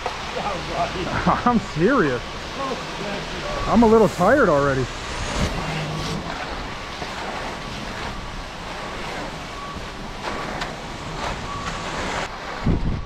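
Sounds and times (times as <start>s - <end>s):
wind on microphone: 4.9s - 7.0s, 12.5s - 13.0s.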